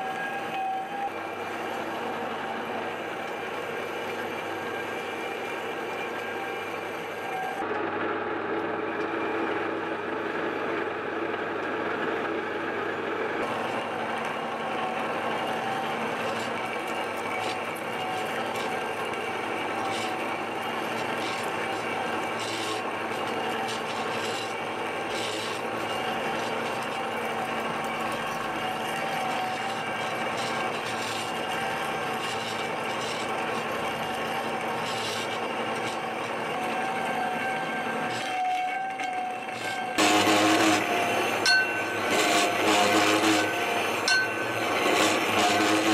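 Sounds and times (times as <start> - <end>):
lathe tool scraping steel: 0.0 - 7.6, 13.4 - 45.9
lathe running hum: 0.0 - 45.9.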